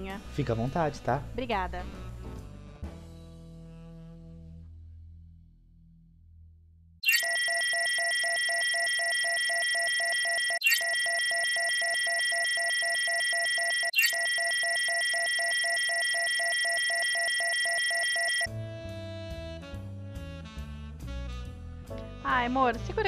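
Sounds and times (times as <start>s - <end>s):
electronic scanner beeping: 7.0s - 18.5s.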